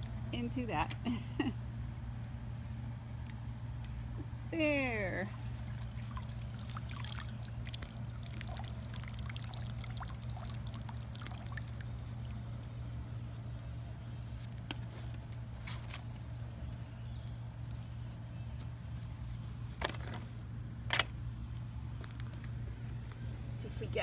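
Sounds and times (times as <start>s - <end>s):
steady low hum: 0.0s - 24.0s
water trickling and dripping: 5.0s - 13.9s.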